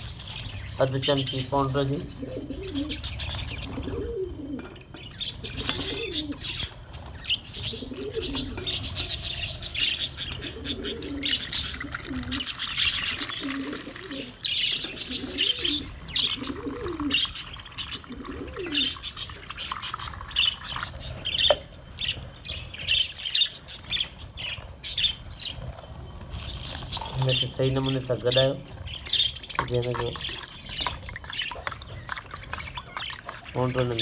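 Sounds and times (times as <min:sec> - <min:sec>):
budgerigars chirping: 0:00.0 - 0:04.2, 0:04.8 - 0:25.6, 0:26.4 - 0:34.0
dove cooing: 0:01.8 - 0:19.6.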